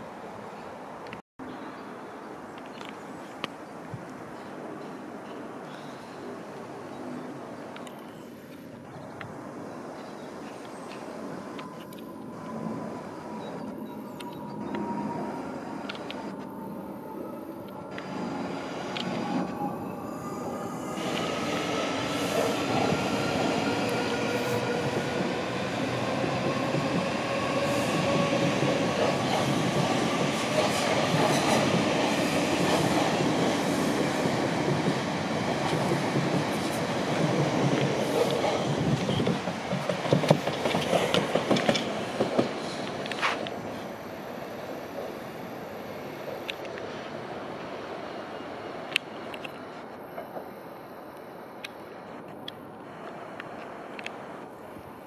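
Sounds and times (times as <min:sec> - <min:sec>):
wheels rumbling on rail: 0:10.0 - 0:45.4.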